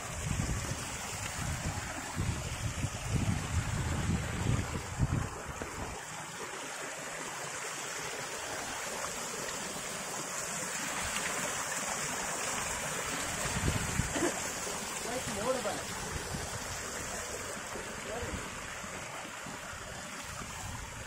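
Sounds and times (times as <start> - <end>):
wind buffeting microphone: 0.0 - 6.0, 13.2 - 14.2
waterfall rushing over rock: 0.0 - 21.0.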